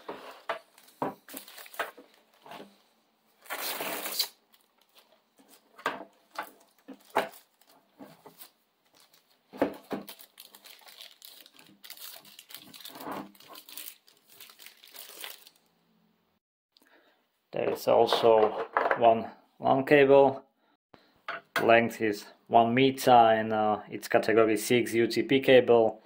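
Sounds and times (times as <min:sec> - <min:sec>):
plastic sleeves crinkling: 0:00.0 - 0:15.7.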